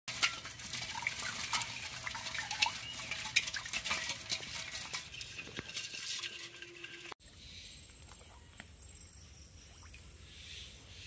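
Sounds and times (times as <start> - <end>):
small clicks and taps on metal pot: 0.1 - 7.1
water dripping and trickling: 0.1 - 7.2.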